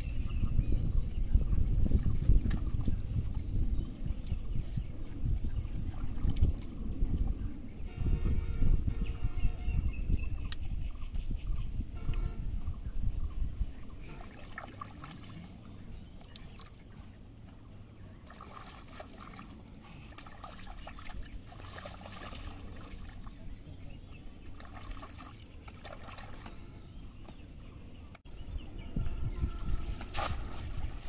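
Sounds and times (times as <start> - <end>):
river water splashing: 14.0 - 27.2, 29.6 - 31.0.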